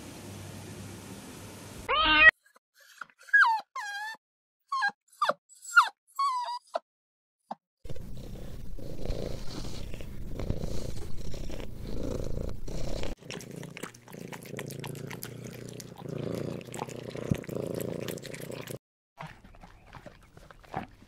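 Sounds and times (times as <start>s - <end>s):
cat purring: 7.9s - 18.8s
quieter cat purring: 7.9s - 18.8s.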